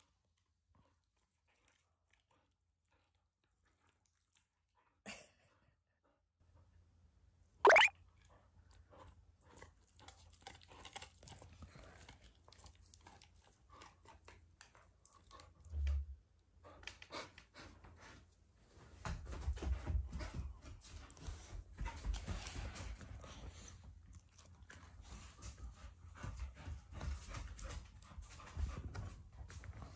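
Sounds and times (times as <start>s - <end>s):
dog gnawing bone chew: 9.5s - 15.5s.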